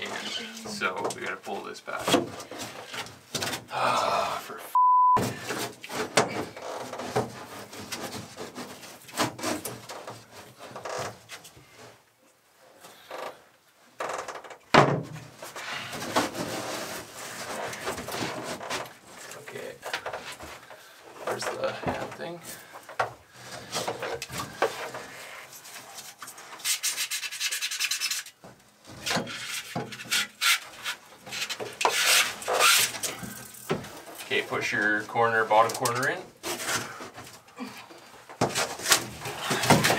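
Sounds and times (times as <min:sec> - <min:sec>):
plywood board scraping: 0:05.3 - 0:12.0, 0:15.2 - 0:34.2, 0:36.3 - 0:37.4, 0:38.3 - 0:39.9
hand tool rasping foam: 0:25.7 - 0:28.4.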